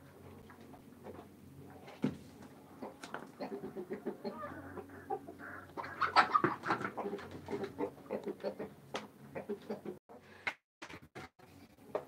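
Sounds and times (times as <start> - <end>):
hens clucking: 2.6 - 10.0.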